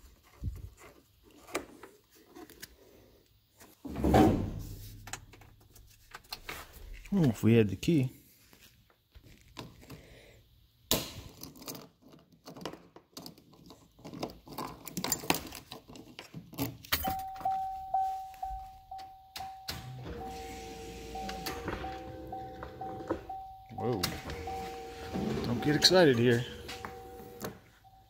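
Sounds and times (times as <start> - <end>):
clicks and knocks of parts: 11.1 - 17.1
lower tone: 17.1 - 28.0
steady whining tone: 17.2 - 28.0.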